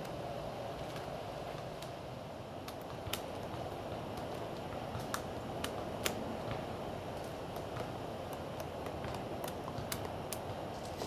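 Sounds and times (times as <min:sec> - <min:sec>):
steady background hiss: 0:00.0 - 0:11.0
woodpeckers tapping on bark: 0:02.6 - 0:11.0.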